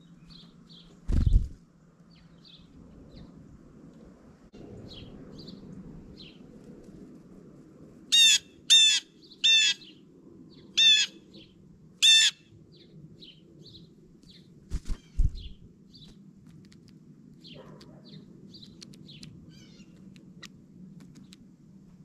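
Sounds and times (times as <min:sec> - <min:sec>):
small birds chirping: 0:00.0 - 0:03.4, 0:08.2 - 0:21.5
bird landing thumps and flutters: 0:01.0 - 0:01.6
blue jay harsh calls: 0:08.1 - 0:10.0, 0:10.7 - 0:12.5, 0:14.9 - 0:15.5, 0:19.5 - 0:20.0.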